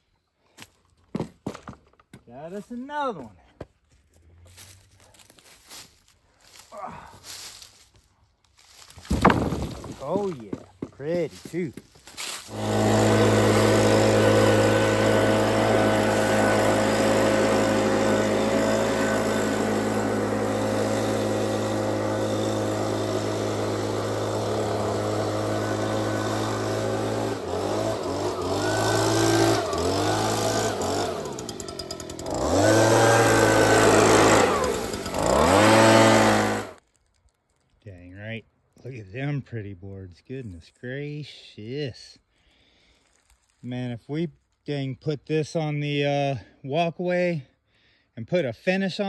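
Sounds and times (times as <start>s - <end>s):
chainsaw running under load: 8.6s - 36.9s.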